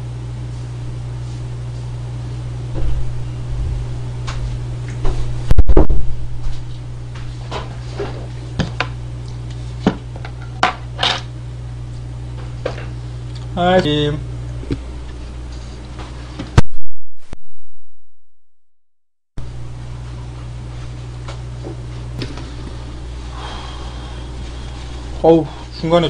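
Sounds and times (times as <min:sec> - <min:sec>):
steady low hum: 0:00.0 - 0:18.5, 0:19.4 - 0:26.0
loud thump: 0:02.8 - 0:03.8, 0:05.0 - 0:06.2.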